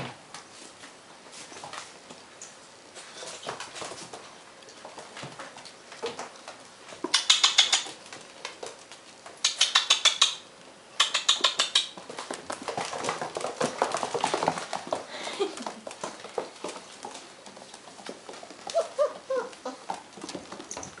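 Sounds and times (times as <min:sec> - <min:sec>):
puppy claws scrabbling on floor: 0:00.0 - 0:21.0
puppy whimpers: 0:18.7 - 0:20.0.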